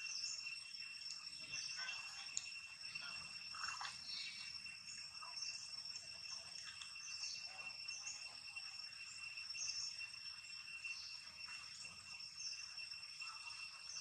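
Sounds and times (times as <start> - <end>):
insect chorus buzzing: 0.0 - 14.0
short high insect chirps: 0.0 - 14.0.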